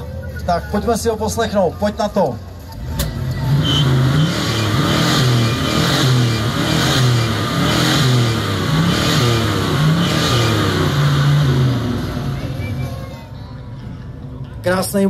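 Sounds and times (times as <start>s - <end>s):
car engine revving: 2.7s - 12.8s.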